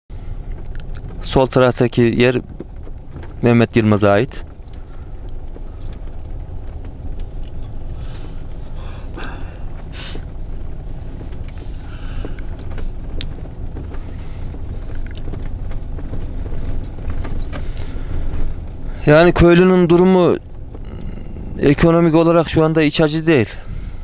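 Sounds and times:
vehicle rumbling on dirt road: 0:00.1 - 0:24.0
knocks and rattles: 0:00.4 - 0:22.8.

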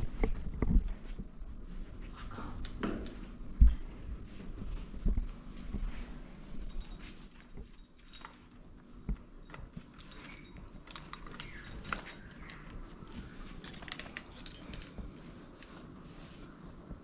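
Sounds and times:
bangles jingling: 0:06.5 - 0:16.0
metal ornaments clicking and jingling: 0:06.5 - 0:16.0
cloth rustling: 0:09.6 - 0:17.0.

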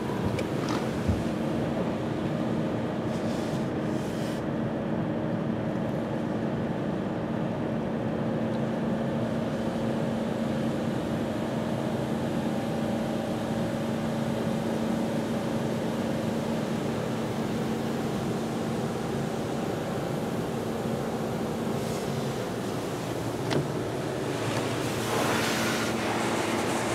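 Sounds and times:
hiss of water spray: 0:21.7 - 0:22.4, 0:24.2 - 0:26.9.

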